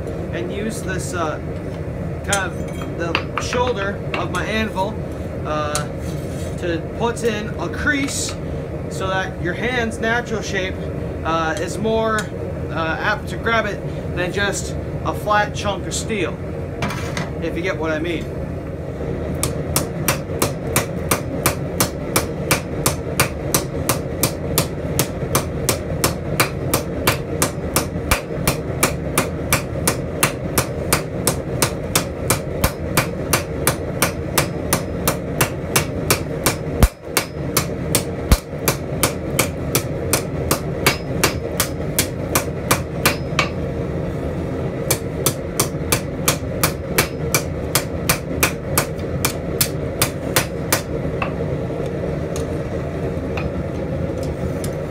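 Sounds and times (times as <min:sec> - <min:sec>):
hammer striking metal on anvil: 0:19.4 - 0:43.6, 0:44.9 - 0:51.4.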